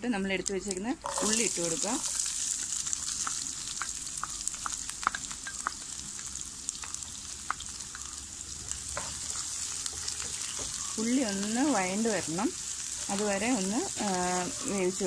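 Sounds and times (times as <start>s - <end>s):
onions sizzling in oil: 0.3s - 15.0s
oil popping: 1.0s - 11.0s.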